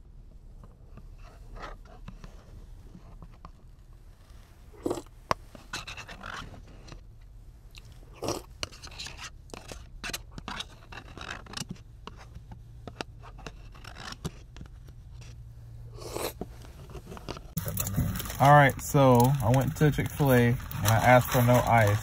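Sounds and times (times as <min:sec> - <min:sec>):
chewing and mouth sounds: 0:07.7 - 0:10.4, 0:16.0 - 0:22.0
spoon scraping a paper bowl: 0:16.0 - 0:22.0.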